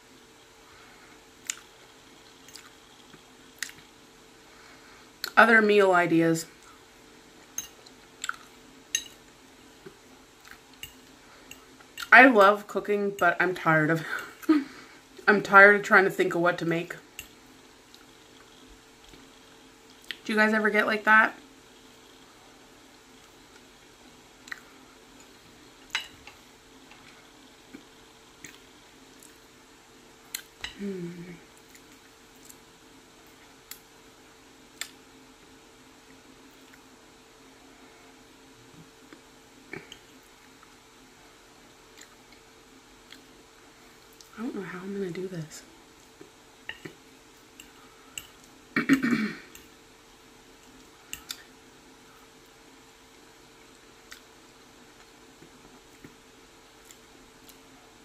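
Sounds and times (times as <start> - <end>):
faint steady hum: 0.0 - 58.0
person chewing food: 1.4 - 3.9, 7.7 - 12.1, 24.4 - 26.2, 26.9 - 29.5, 41.9 - 43.4, 53.6 - 54.4, 56.8 - 57.7.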